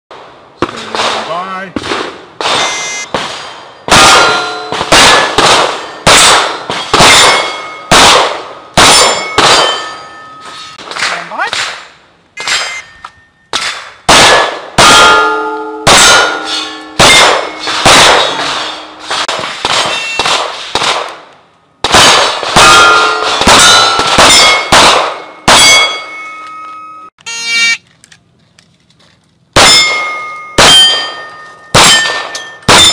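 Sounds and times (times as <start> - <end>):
pistol shots: 0.2 - 10.0, 10.8 - 12.8, 13.5 - 21.2, 21.8 - 26.0, 29.6 - 32.9
steel target plate clanging: 8.8 - 10.8, 12.4 - 14.3, 14.9 - 19.3, 22.7 - 27.7, 29.6 - 32.9.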